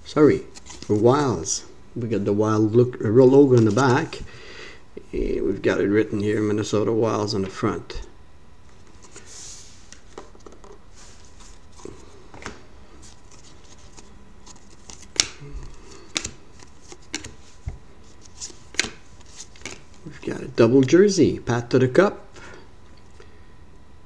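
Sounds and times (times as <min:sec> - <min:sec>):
trading cards flicking: 0:16.0 - 0:17.4.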